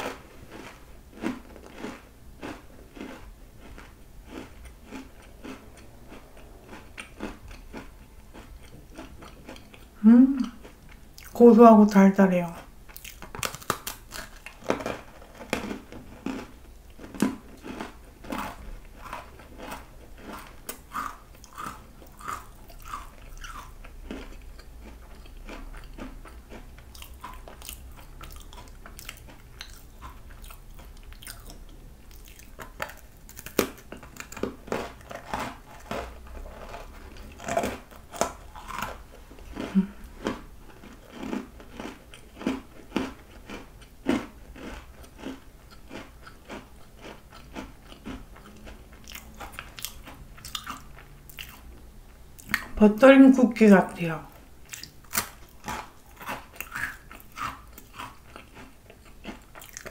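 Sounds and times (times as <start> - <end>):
crunchy cookie chewing: 0.0 - 11.5, 12.4 - 52.8, 54.3 - 59.9.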